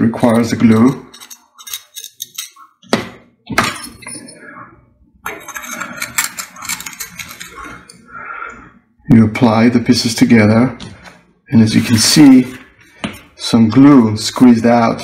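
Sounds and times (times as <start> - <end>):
ceramic pieces clicking and scraping: 0.2 - 2.9, 5.2 - 8.0.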